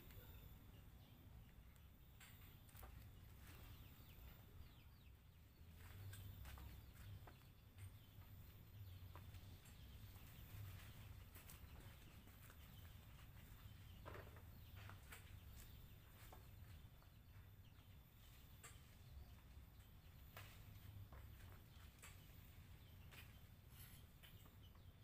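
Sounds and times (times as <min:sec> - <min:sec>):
faint high chirps: 0:00.0 - 0:07.4.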